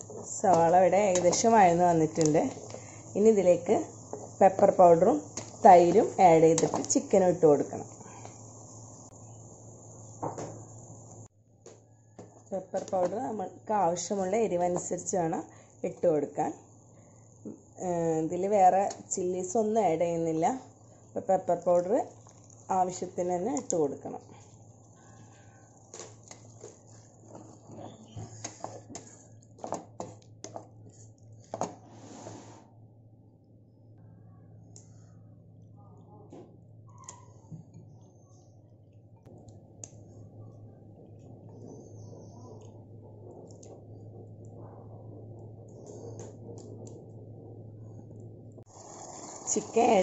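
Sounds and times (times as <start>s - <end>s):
food sizzling in a pan: 0.0s - 11.3s, 48.7s - 50.0s
crackles and clicks: 0.0s - 13.5s, 21.5s - 31.5s, 38.9s - 49.5s
wooden spatula scraping pan: 31.8s - 32.6s
low hum: 32.7s - 48.7s.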